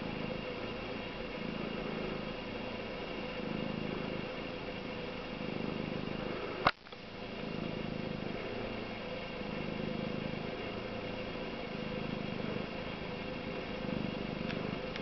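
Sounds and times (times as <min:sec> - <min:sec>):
cat purring: 0:00.0 - 0:15.0
sharp click: 0:06.6 - 0:07.0.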